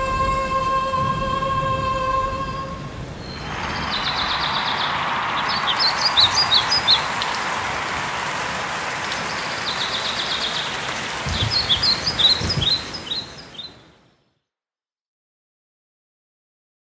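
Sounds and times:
steady outdoor hiss: 0.0s - 14.2s
birds chirping: 2.8s - 14.0s
low thuds: 11.2s - 13.0s.

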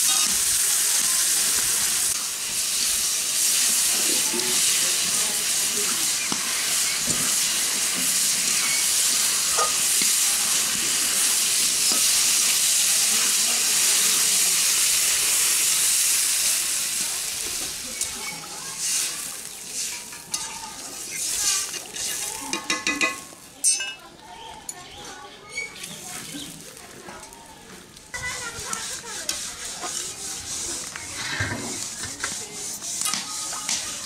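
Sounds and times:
metal spatula scraping pan: 0.0s - 0.5s, 5.8s - 10.2s, 28.2s - 34.0s
food sizzling in hot oil: 0.0s - 34.0s.

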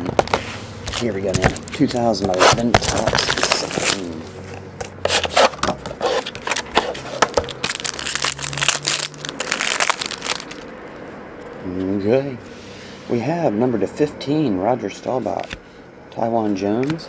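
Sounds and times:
plastic wrapping crinkling: 0.2s - 4.2s, 6.2s - 10.7s.

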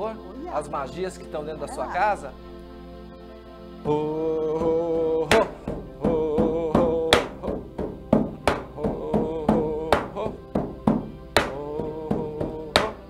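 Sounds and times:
frame drum beaten steadily: 4.6s - 13.0s.

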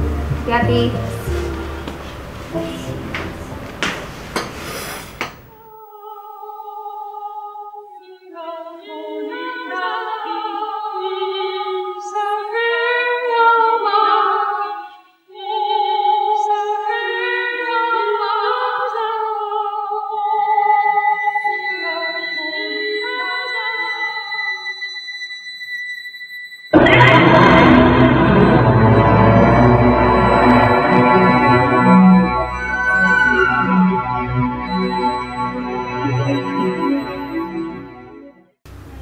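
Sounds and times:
steady high tone: 26.7s - 38.3s.

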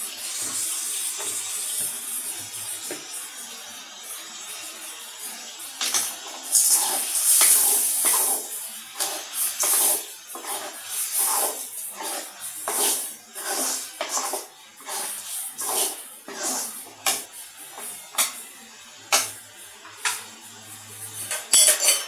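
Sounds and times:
food sizzling in oil: 0.0s - 22.0s
metal spoon scraping a pan: 5.8s - 18.4s, 21.2s - 22.0s.

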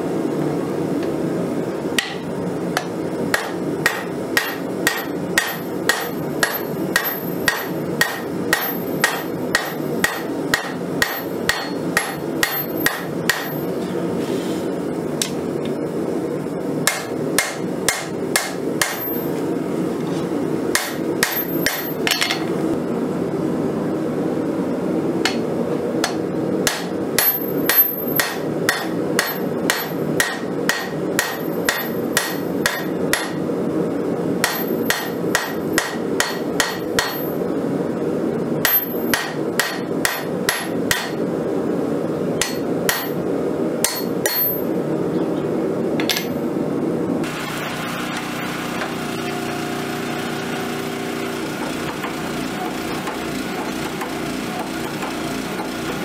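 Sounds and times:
hammer striking metal on anvil: 2.0s - 13.7s, 16.8s - 19.4s, 20.7s - 22.6s, 25.2s - 33.4s, 34.4s - 37.4s, 38.6s - 41.2s, 42.4s - 43.2s, 43.8s - 44.7s, 46.0s - 46.4s, 51.8s - 56.0s.

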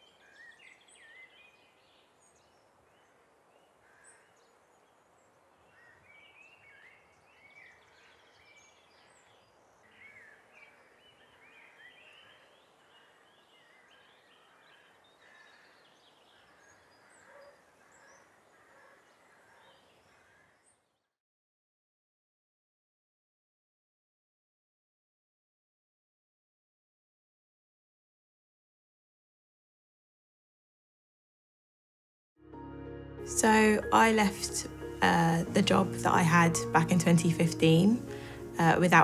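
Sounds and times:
small birds chirping: 0.0s - 21.1s.

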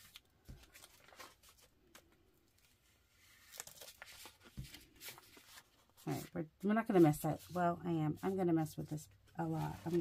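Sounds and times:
paint scraping across paper: 5.0s - 8.5s.

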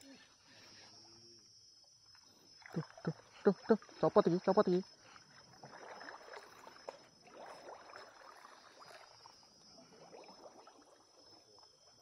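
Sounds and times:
splashing shallow muddy water: 2.3s - 11.6s.

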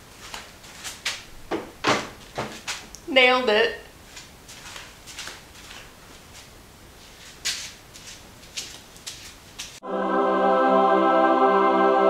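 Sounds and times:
soft rustles and scuffs: 0.0s - 1.3s, 2.2s - 2.9s, 4.0s - 9.8s
calm ambient music: 9.8s - 12.0s.

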